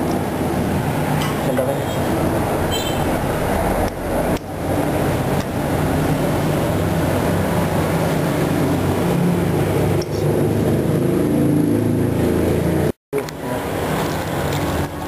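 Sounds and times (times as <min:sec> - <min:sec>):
low mechanical rumble: 0:00.3 - 0:10.7.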